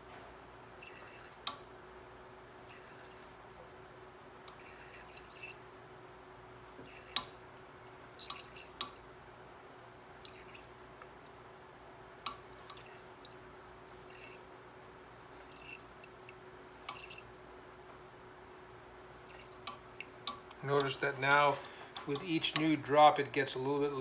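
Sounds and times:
faint steady hum: 0.0 - 24.0
liquid swirled in glass flask: 0.7 - 1.4, 2.6 - 3.4, 4.5 - 5.7, 6.8 - 7.4, 8.2 - 8.8, 10.2 - 10.8, 12.5 - 13.4, 14.0 - 14.5, 15.2 - 16.2, 16.9 - 17.3, 19.2 - 19.6.

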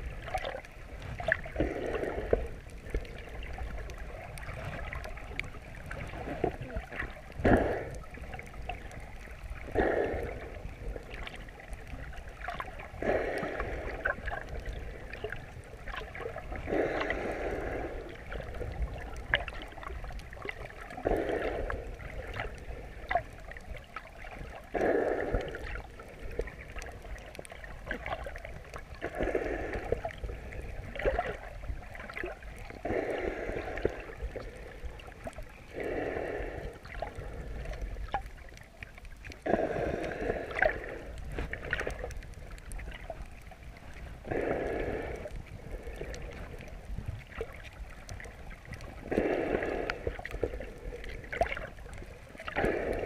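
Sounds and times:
muffled underwater breathing: 0.0 - 23.4, 24.3 - 53.0
faint clicks: 0.1 - 35.9, 36.6 - 53.0.

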